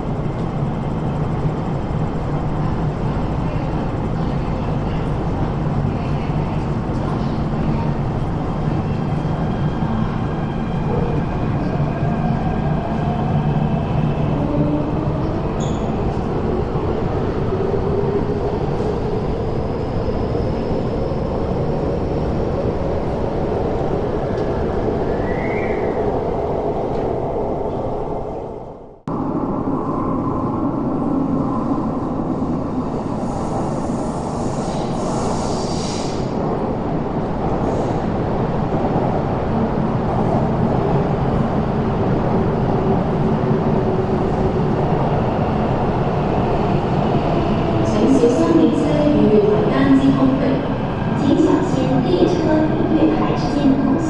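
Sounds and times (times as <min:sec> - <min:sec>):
metro train rumble: 0:00.0 - 0:54.0
train squeal: 0:15.6 - 0:16.0.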